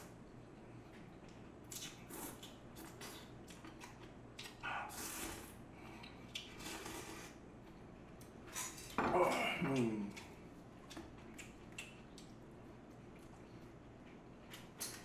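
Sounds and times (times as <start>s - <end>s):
person slurping and chewing noodles: 1.7s - 7.4s.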